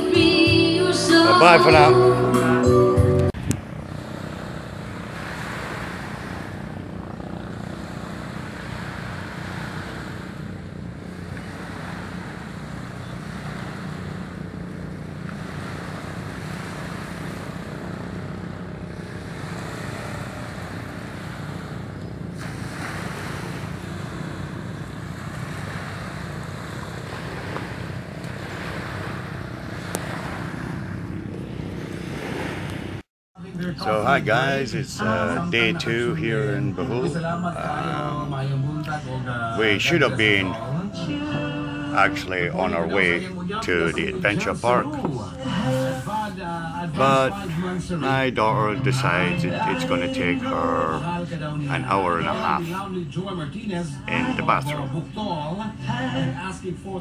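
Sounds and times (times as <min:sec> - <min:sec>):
wind rumble on microphone: 0:03.2 - 0:33.0
small waves washing on sand: 0:03.4 - 0:33.0.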